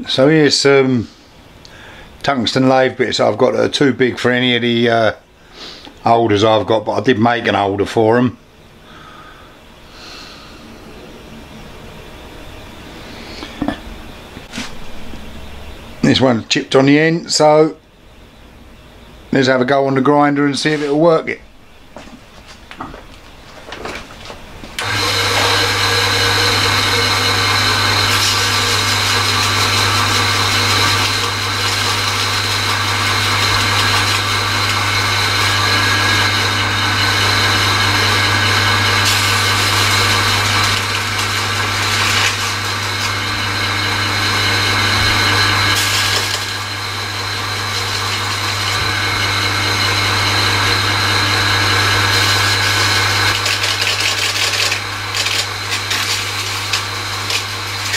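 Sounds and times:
electric motor humming: 0:24.8 - 0:57.9
tool bit against grinding wheel: 0:47.6 - 0:57.9.

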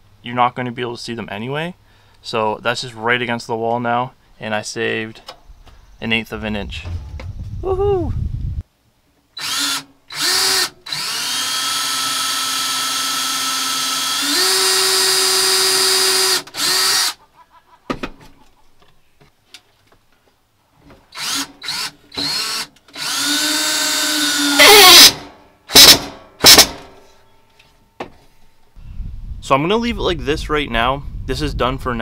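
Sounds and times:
cordless drill into wood: 0:09.4 - 0:17.2, 0:21.1 - 0:26.9.

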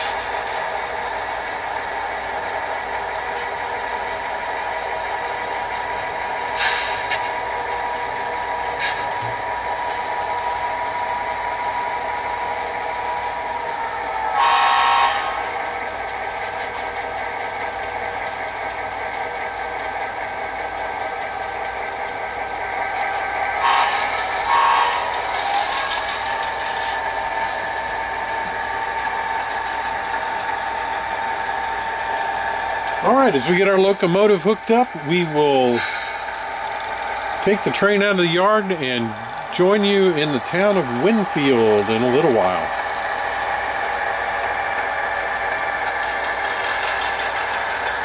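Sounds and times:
model locomotive engine sound: 0:00.0 - 0:48.0
locomotive horn blasts: 0:14.4 - 0:15.4, 0:23.6 - 0:25.1.

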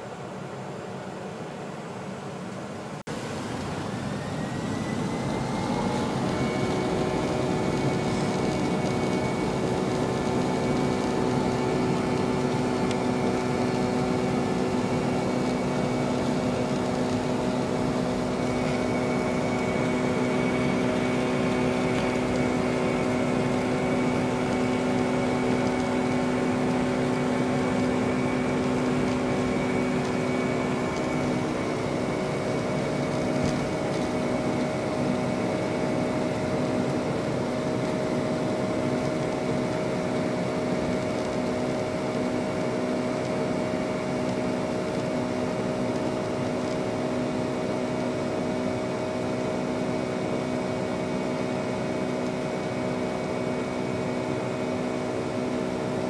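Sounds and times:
airplane cabin engine rush: 0:00.0 - 0:56.0.

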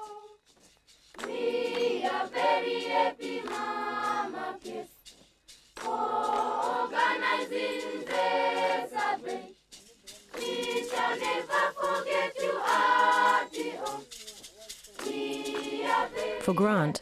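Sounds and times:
children's choir singing: 0:00.0 - 0:00.4, 0:01.2 - 0:05.0, 0:05.8 - 0:09.5, 0:10.4 - 0:14.1, 0:15.0 - 0:16.9.

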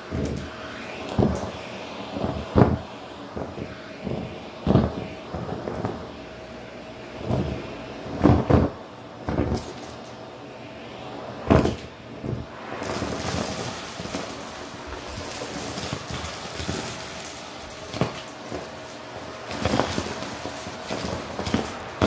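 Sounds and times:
vacuum cleaner running: 0:00.0 - 0:22.0
debris rattling up vacuum tube: 0:12.8 - 0:22.0.

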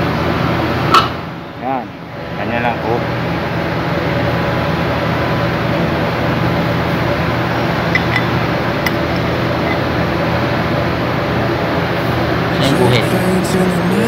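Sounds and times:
low machine hum with hiss: 0:00.0 - 0:14.0.

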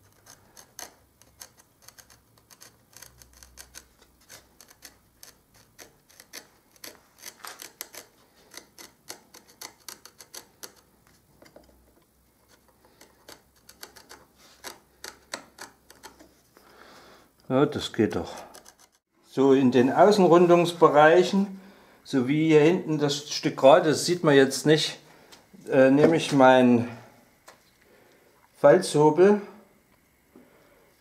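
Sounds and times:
knife scoring wood: 0:00.0 - 0:16.4, 0:18.1 - 0:19.1.

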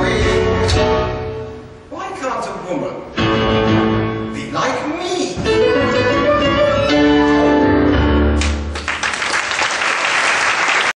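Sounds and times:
piano chords: 0:00.0 - 0:01.9, 0:03.1 - 0:09.1
audience applause: 0:08.4 - 0:11.0.

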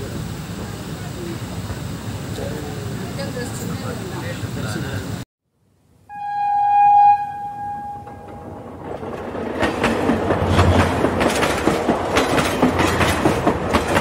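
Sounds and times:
train horn: 0:06.1 - 0:08.6
train wheels clattering over rail joints: 0:08.3 - 0:14.0.

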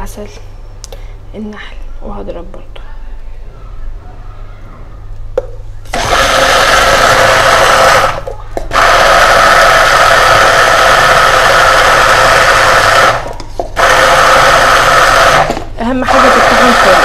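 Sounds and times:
immersion blender running: 0:05.9 - 0:17.0.

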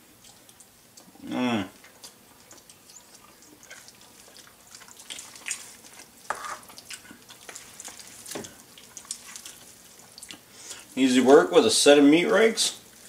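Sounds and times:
meat rakes tearing pork: 0:02.0 - 0:10.5
scraping on wooden cutting board: 0:06.3 - 0:06.7.

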